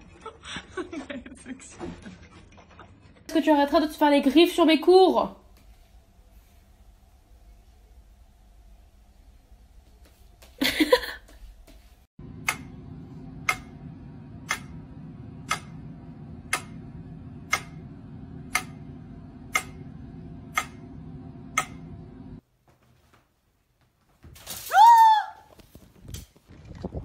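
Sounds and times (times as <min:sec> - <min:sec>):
low hum: 0:12.2 - 0:22.4
loud cry: 0:24.7 - 0:25.5.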